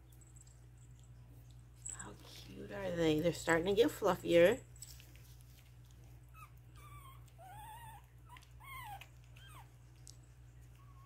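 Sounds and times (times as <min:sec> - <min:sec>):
puppies squeaking and whimpering: 0:06.3 - 0:09.8.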